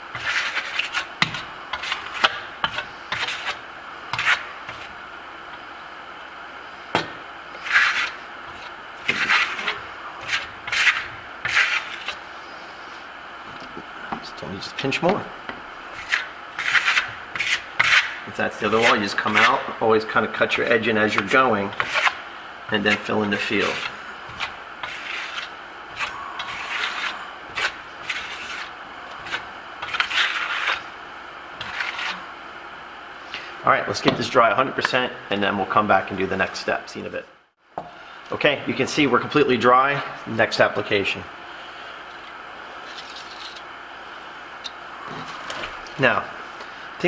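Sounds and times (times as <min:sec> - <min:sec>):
trowel scraping wet plaster: 0:00.1 - 0:03.6, 0:04.2 - 0:04.9, 0:07.6 - 0:12.2, 0:15.9 - 0:19.7, 0:21.1 - 0:22.2, 0:22.8 - 0:30.9, 0:31.6 - 0:32.2.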